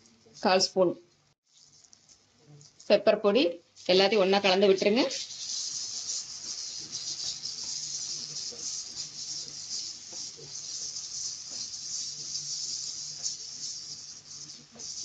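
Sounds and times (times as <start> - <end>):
food sizzling in hot oil: 1.4 - 15.0
spatula scraping a pan: 3.9 - 15.0.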